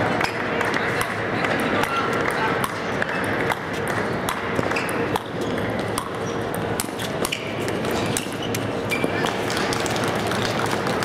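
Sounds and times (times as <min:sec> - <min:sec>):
faint constant hum: 0:00.0 - 0:11.0.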